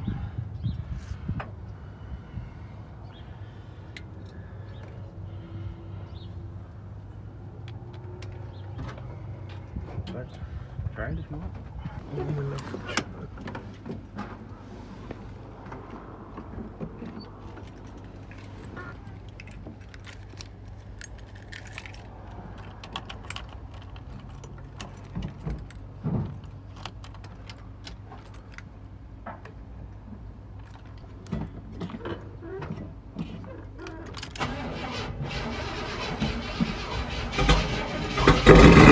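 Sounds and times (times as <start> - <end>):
small clicks and knocks of handling: 19.2 - 29.6.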